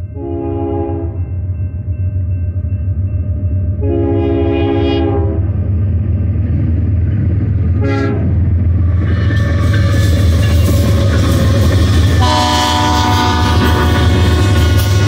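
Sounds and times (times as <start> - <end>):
train air horn: 0.2 - 1.2, 3.8 - 5.4, 7.8 - 8.4, 12.1 - 15.0.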